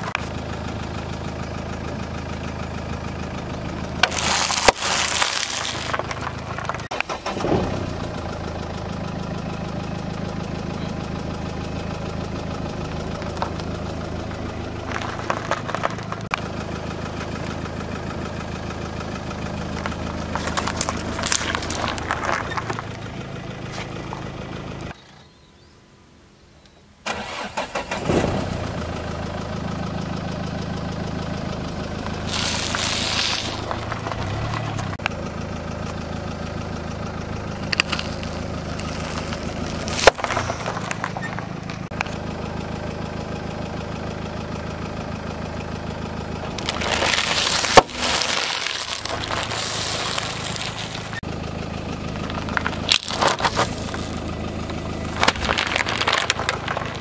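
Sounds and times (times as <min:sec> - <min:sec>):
car engine idling: 0:00.0 - 0:26.3, 0:27.0 - 0:57.0
tyre crushing objects: 0:04.0 - 0:06.9, 0:20.2 - 0:23.0, 0:32.1 - 0:34.9, 0:37.6 - 0:42.0, 0:46.5 - 0:51.2, 0:52.3 - 0:57.0.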